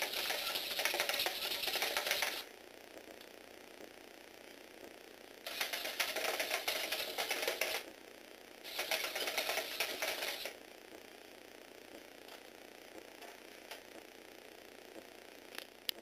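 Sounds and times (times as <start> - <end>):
toy robot motor and gears clattering: 0.0 - 2.5, 5.4 - 7.9, 8.6 - 10.6.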